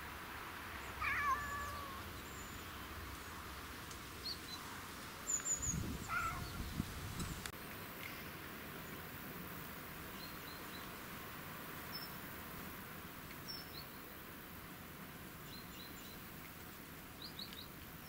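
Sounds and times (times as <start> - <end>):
cat meowing: 1.0 - 2.1, 6.0 - 6.5.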